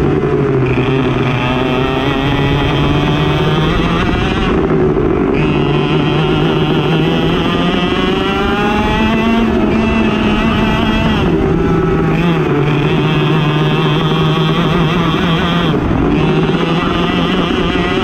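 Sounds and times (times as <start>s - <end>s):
kart engine at full throttle: 0.0s - 18.0s.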